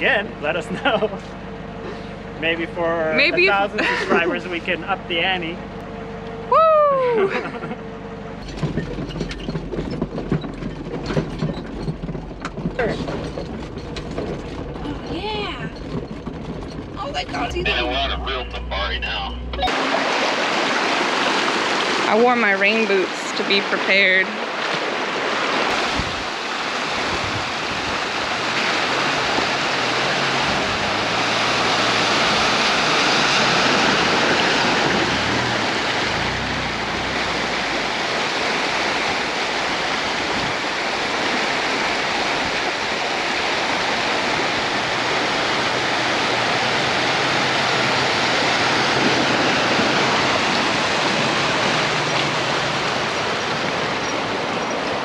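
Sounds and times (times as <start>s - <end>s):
river water rushing over rocks: 19.6s - 55.0s.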